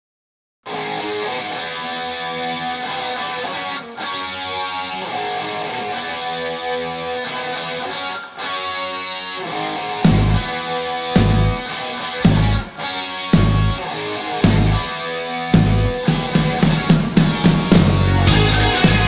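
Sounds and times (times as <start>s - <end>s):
electric guitar chords ringing: 0.7s - 19.0s
heavy low band hits: 10.1s - 10.5s, 11.2s - 11.6s, 12.2s - 12.7s, 13.4s - 13.8s, 14.4s - 14.8s, 15.6s - 19.0s.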